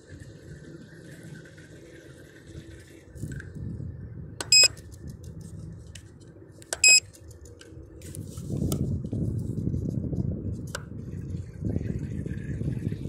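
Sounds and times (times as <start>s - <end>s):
electronic beeps: 4.4s - 4.8s, 6.8s - 7.0s.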